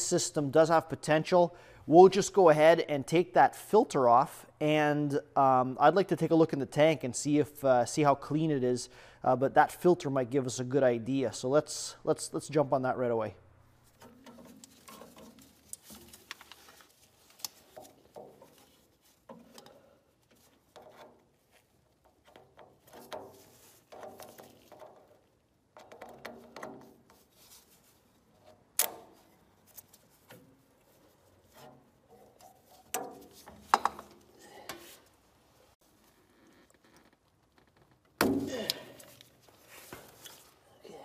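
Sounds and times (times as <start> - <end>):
gloved hand rustling: 13.8 - 36.3, 38.3 - 40.8.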